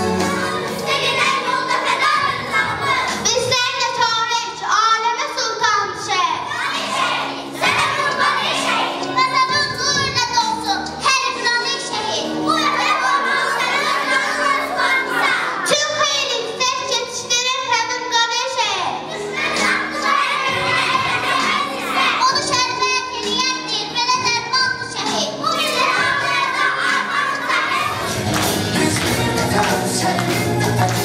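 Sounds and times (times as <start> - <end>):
electronic keyboard accompaniment: 0.0 - 3.5, 19.0 - 31.0.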